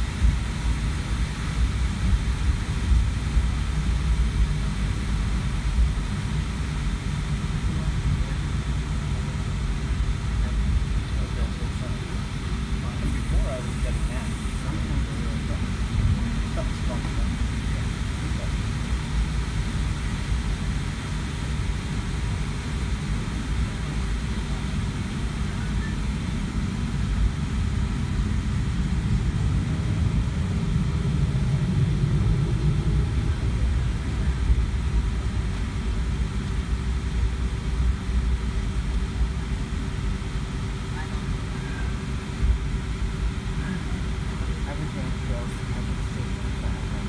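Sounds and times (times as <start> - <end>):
constant hum: 0.0 - 47.0
low engine rumble: 0.0 - 47.0.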